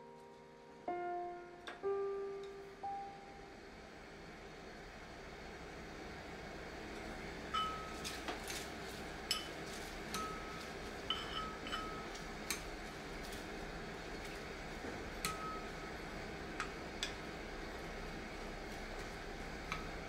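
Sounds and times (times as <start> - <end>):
tableware clinking: 7.6 - 8.0, 9.3 - 12.1.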